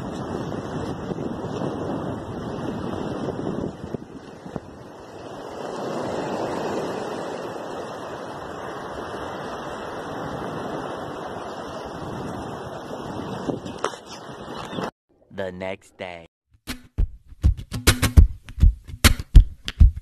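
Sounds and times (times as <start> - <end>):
sea waves rushing: 0.0 - 14.9
wind buffeting microphone: 0.0 - 14.9.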